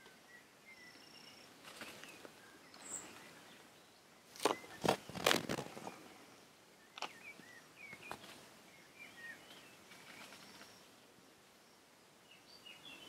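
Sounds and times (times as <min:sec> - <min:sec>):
small birds chirping: 0:00.0 - 0:13.0
stone clicks on paving: 0:07.0 - 0:07.2.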